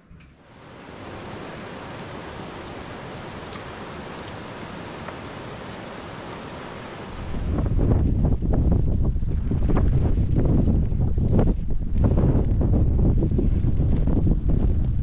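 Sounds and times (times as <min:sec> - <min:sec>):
wind buffeting microphone: 0:00.0 - 0:15.0
rushing hiss of water: 0:00.4 - 0:07.9.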